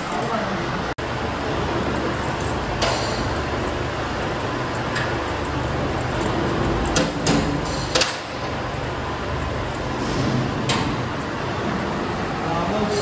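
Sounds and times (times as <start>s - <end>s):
steady background hum: 0.0s - 13.0s
metal springs clinking: 4.6s - 11.4s.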